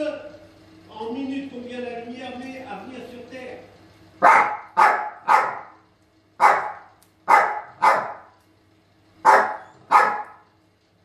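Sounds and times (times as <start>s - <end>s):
small dogs barking: 4.2s - 5.8s, 6.4s - 8.4s, 9.2s - 10.5s.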